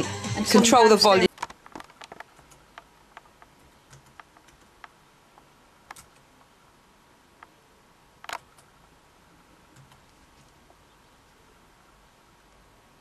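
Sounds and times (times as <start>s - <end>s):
laptop keys tapping: 1.3s - 6.5s, 8.2s - 8.7s, 9.7s - 10.8s.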